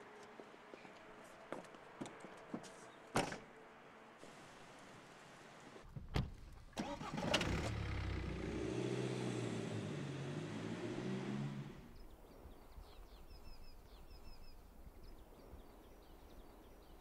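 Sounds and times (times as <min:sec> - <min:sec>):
diesel engine starting and idling: 0:06.7 - 0:11.9.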